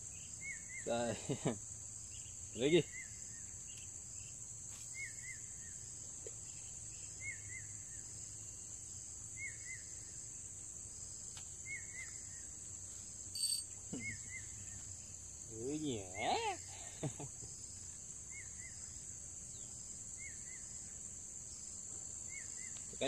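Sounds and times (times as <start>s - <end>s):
insects droning: 0.0s - 23.0s
short double chirp: 13.4s - 13.7s.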